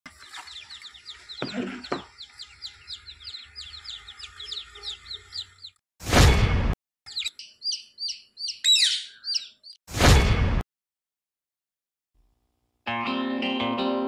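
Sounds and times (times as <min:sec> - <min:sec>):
chicks peeping: 0:00.1 - 0:05.8, 0:07.1 - 0:09.8.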